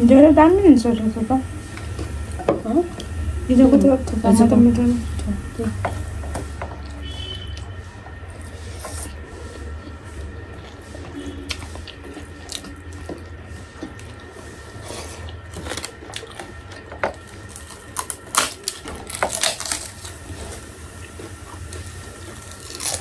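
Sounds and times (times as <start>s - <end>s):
steady low hum: 0.0s - 23.0s
people chewing and lip smacking: 5.1s - 23.0s.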